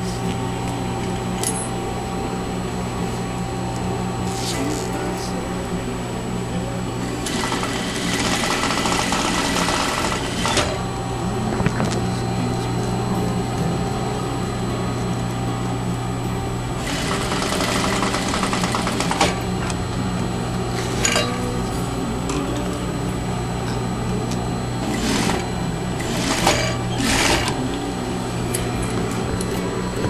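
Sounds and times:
sewing machine motor hum: 0.0 - 30.0
sewing machine stitching: 7.2 - 10.8, 16.8 - 19.4, 24.9 - 25.4, 26.0 - 27.6.

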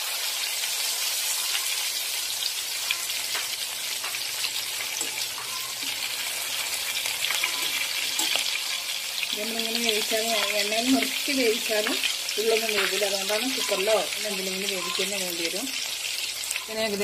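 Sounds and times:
oil sizzling and crackling: 0.0 - 17.0
utensils clicking against wok: 4.9 - 6.0, 7.3 - 8.6.

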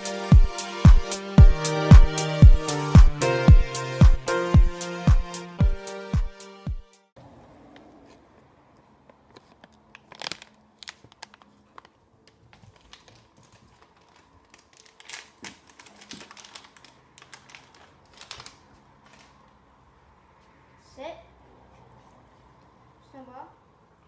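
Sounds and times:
plastic bag crinkling: 9.3 - 19.6.

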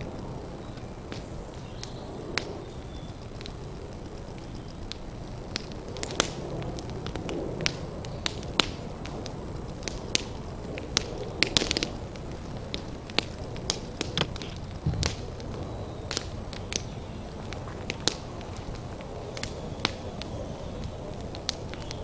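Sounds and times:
thatch fire crackling: 0.0 - 22.0
low rumble: 11.9 - 21.4.

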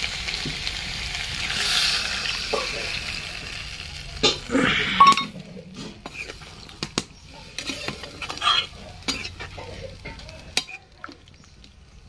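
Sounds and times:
spatula scraping pan: 4.2 - 10.8.

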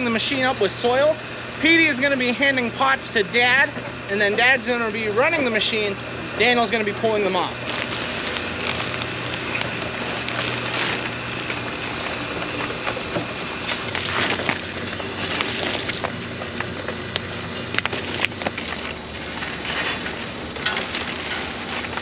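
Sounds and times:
machine motor hum: 0.0 - 22.0
soil rushing through machine: 7.5 - 16.2, 17.8 - 22.0.

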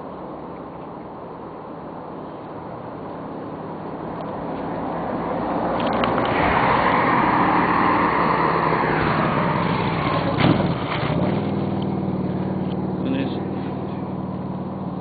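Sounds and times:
broad rush of noise: 0.0 - 15.0
vehicle engine running: 8.7 - 15.0.

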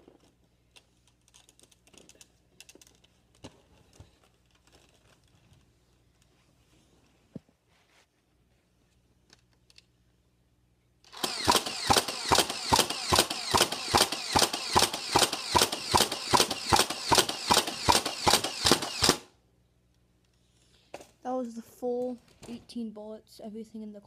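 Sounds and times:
toy blaster motor running: 11.1 - 19.3.

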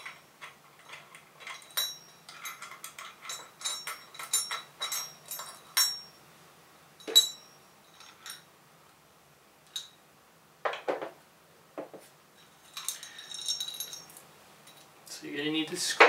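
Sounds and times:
metal clinks of screws: 0.0 - 6.2, 7.0 - 8.5, 12.4 - 14.9.

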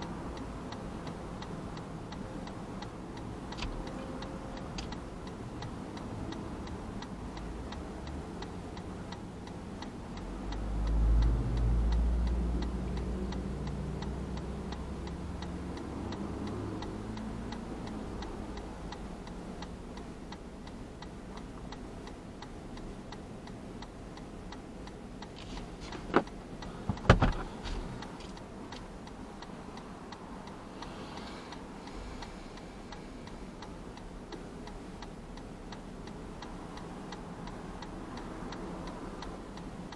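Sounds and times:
passing vehicle rumble: 0.0 - 19.6
turn signal ticking: 0.0 - 39.9
sharp knocks: 26.9 - 27.5.

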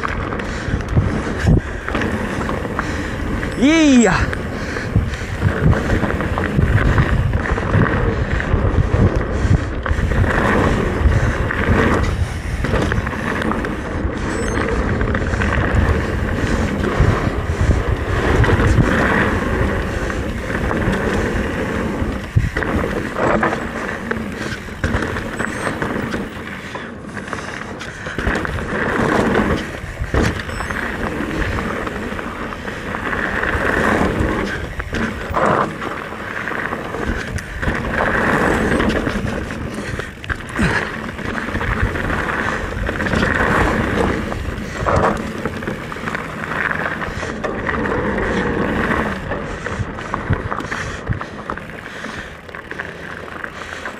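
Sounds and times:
bike tyres rolling on dirt: 0.0 - 53.9
wind buffeting microphone: 0.0 - 53.9
bike bumps and knocks: 20.2 - 26.4, 27.6 - 32.0, 36.6 - 51.0.

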